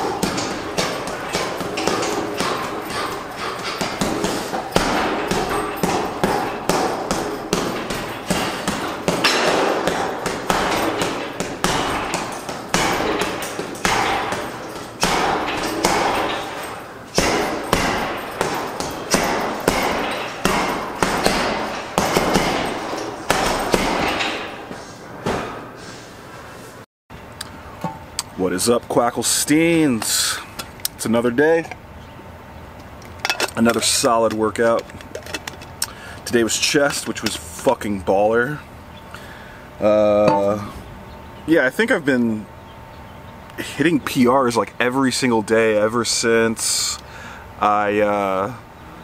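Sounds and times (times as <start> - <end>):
sharp knocks and thuds: 0.0 - 24.6.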